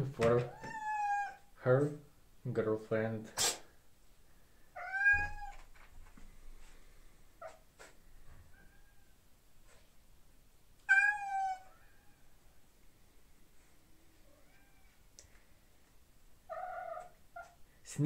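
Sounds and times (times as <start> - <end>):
cat meowing: 0.5 - 1.5, 4.8 - 5.7, 10.8 - 12.3, 14.3 - 15.0, 16.5 - 17.6.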